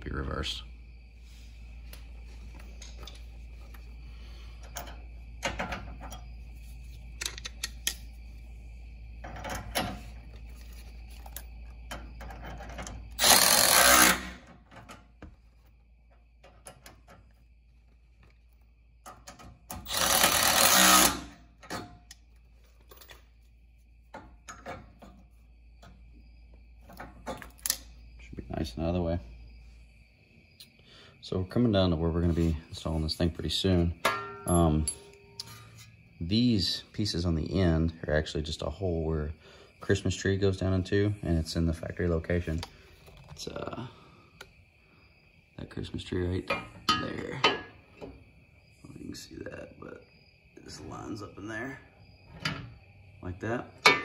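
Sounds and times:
tools and metal parts clinking: 2.6s - 3.8s, 4.6s - 6.2s, 7.2s - 8.1s, 9.2s - 15.0s, 19.0s - 23.4s, 33.1s - 36.0s, 46.4s - 48.1s, 53.8s - 54.0s
power driver spinning bolts: 12.3s - 14.4s, 19.7s - 21.8s.

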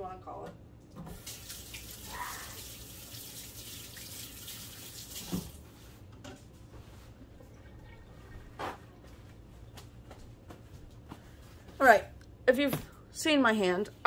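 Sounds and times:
faucet running over hands: 1.1s - 5.6s.

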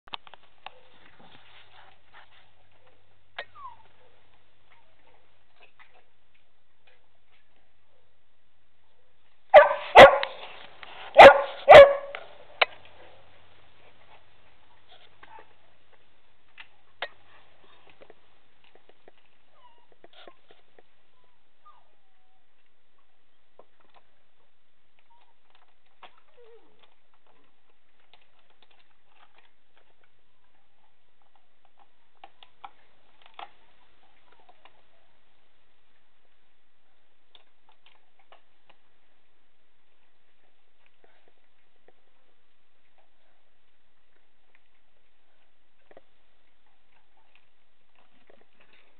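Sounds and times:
dog barking: 9.5s - 10.4s, 11.2s - 12.2s.

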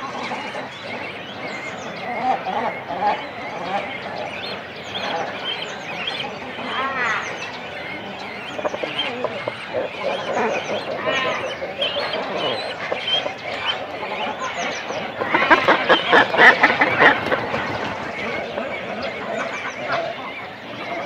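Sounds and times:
birds calling in background: 0.0s - 21.0s
cormorants calling in chorus: 0.0s - 21.0s.

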